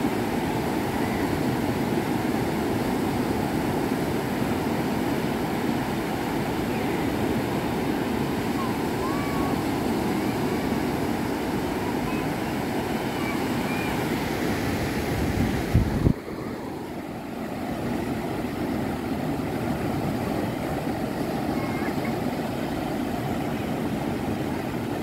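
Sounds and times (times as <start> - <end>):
waves washing up a beach: 0.0 - 25.0
wind on microphone: 0.0 - 25.0
wind buffeting microphone: 7.4 - 25.0.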